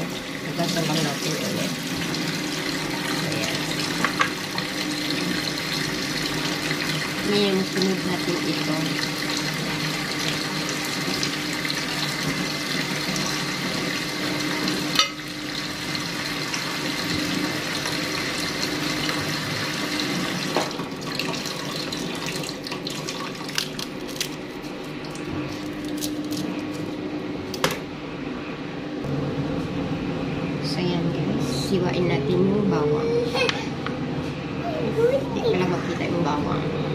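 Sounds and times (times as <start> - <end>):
tap water running into sink: 0.0 - 23.9.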